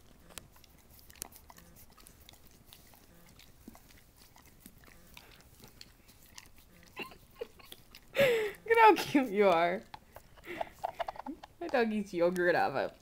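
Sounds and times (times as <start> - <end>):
dog licking wet smacks: 0.0 - 8.2.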